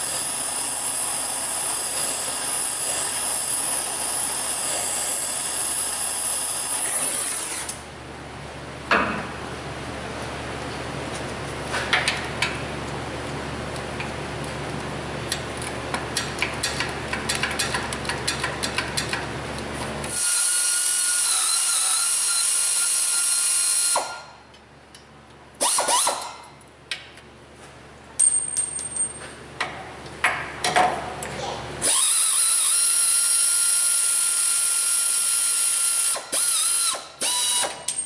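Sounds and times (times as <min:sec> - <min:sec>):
power tool hissing and whining: 0:00.0 - 0:07.8, 0:20.1 - 0:24.2
metal clunks: 0:08.9 - 0:09.4.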